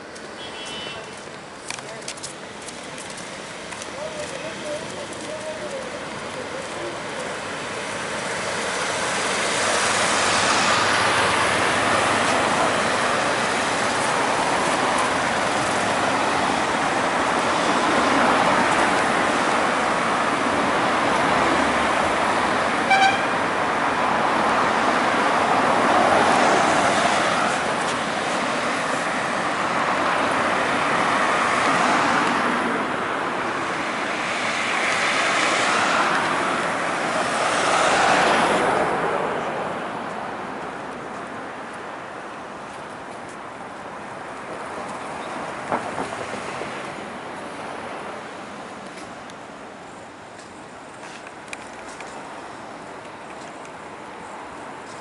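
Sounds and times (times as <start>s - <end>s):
cars passing: 0.0s - 55.0s
car horn toot: 0.4s - 1.1s, 22.8s - 23.4s.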